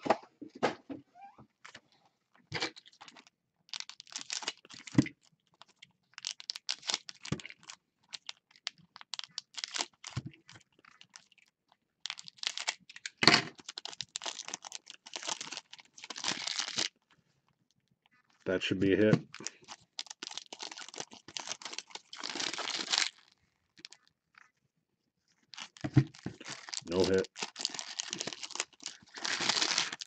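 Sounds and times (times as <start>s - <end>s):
foil wrappers crinkling: 2.7s - 17.0s, 19.3s - 24.1s, 25.4s - 30.0s.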